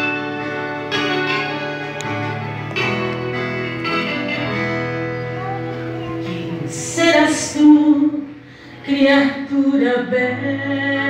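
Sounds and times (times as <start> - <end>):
slow guitar chords ringing: 0.0 - 11.0.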